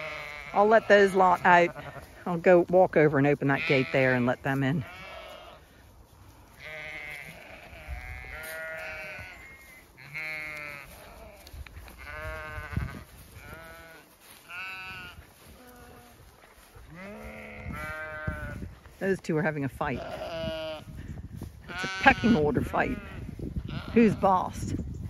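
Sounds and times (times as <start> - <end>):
sheep bleating: 0.0 - 2.2, 3.4 - 5.6, 6.6 - 16.2, 16.9 - 18.7, 19.8 - 21.0, 21.6 - 24.5.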